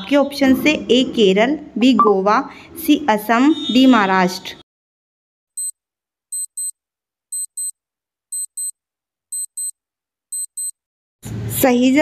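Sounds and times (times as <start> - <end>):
high-pitched clock ticks: 6.3 - 6.7, 7.3 - 10.8.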